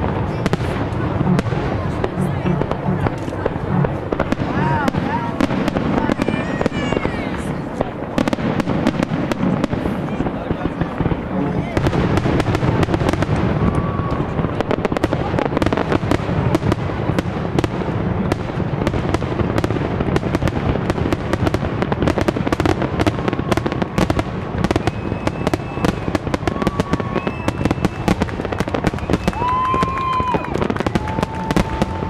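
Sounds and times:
firework bursts: 0:00.0 - 0:32.0
firework whistles: 0:21.6 - 0:32.0.

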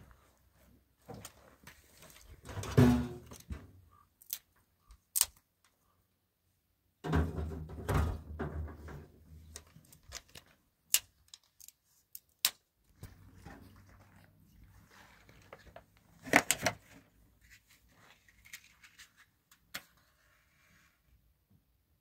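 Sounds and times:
twigs snapping: 0:04.2 - 0:04.5, 0:05.1 - 0:05.4.

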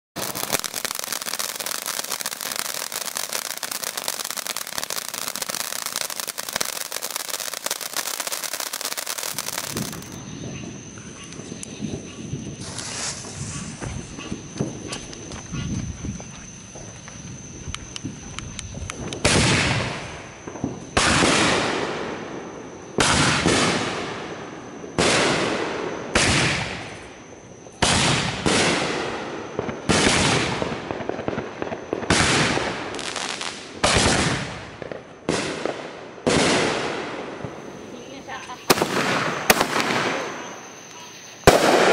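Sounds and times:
fireworks bangs: 0:00.2 - 0:10.8, 0:18.0 - 0:27.0, 0:27.7 - 0:41.9
faint fireworks crackles: 0:00.2 - 0:41.9.

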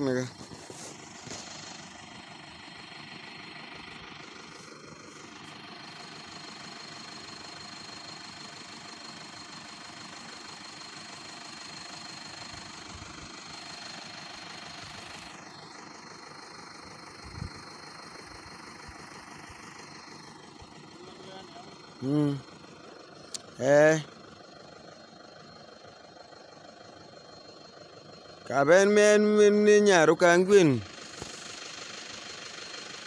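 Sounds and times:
pickup engine idling: 0:00.0 - 0:33.0.

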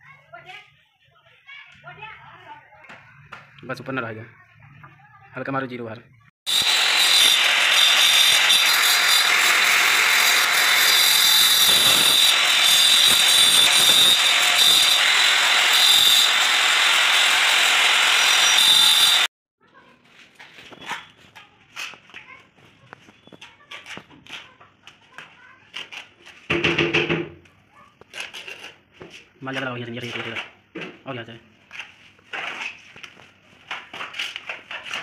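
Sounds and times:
angle grinder cutting stone: 0:06.5 - 0:19.3.

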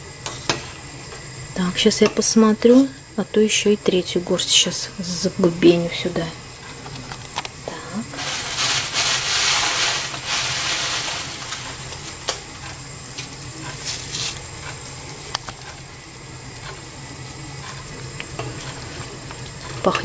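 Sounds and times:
soup boiling and bubbling: 0:06.5 - 0:20.0.

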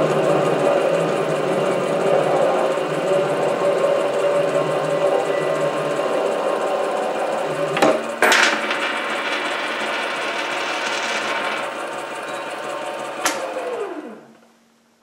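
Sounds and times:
lathe running: 0:00.0 - 0:14.4
metal scraping clatter: 0:07.9 - 0:12.6.

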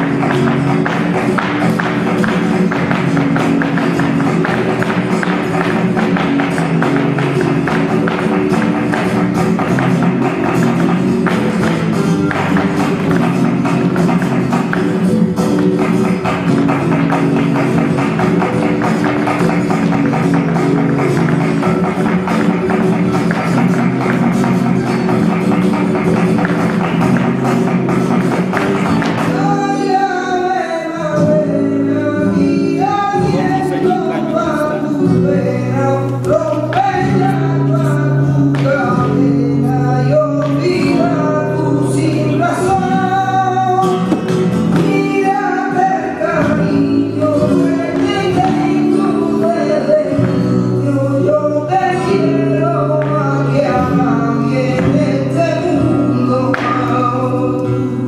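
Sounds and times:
solo voice singing: 0:29.3 - 0:44.1.

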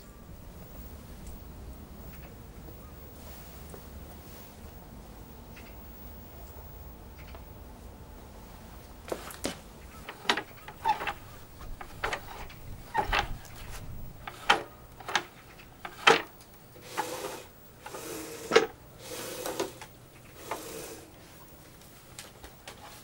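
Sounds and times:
saw head sliding on rails: 0:09.1 - 0:21.2.

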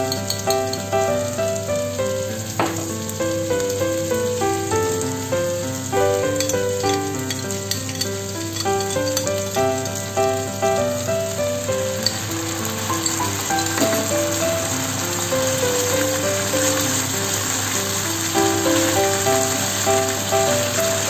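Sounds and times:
background melody: 0:00.0 - 0:21.0
oil sizzling in a pan: 0:00.0 - 0:21.0
spoon stirring: 0:06.3 - 0:09.6, 0:11.9 - 0:14.4.

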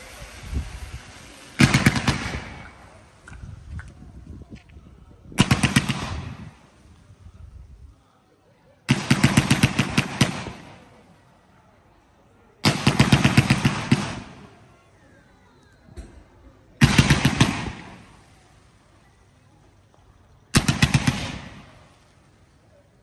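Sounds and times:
fireworks banging in volleys: 0:00.0 - 0:08.1, 0:08.8 - 0:23.0.

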